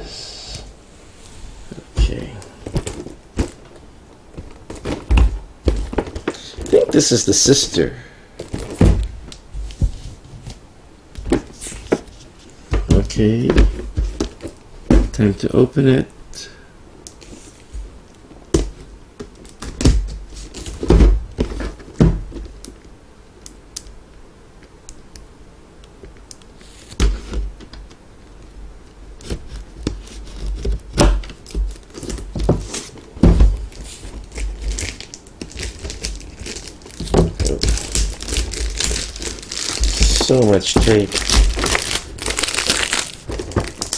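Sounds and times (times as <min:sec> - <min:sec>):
tape scraping and crinkling: 0:02.5 - 0:07.8, 0:18.7 - 0:22.7, 0:29.2 - 0:43.9.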